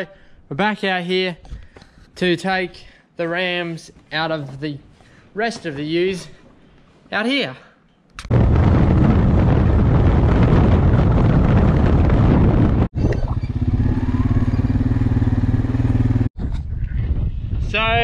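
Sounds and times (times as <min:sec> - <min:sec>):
quad bike engine running: 0:13.4 - 0:16.3.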